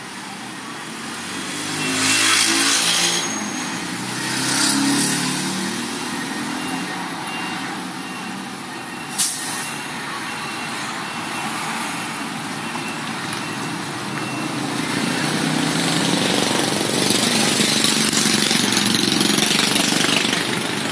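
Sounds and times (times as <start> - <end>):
vehicle engines passing: 0.0 - 20.9
faint repeating beep: 1.7 - 2.7, 4.6 - 16.4.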